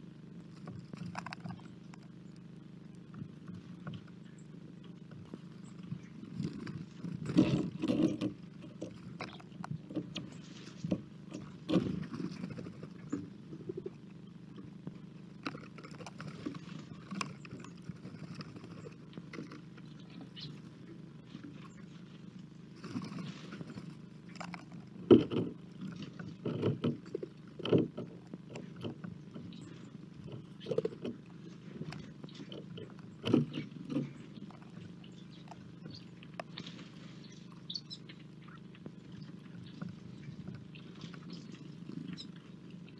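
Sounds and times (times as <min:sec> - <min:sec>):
steady low hum: 0:00.0 - 0:42.9
animals scrabbling on wood: 0:00.4 - 0:42.9.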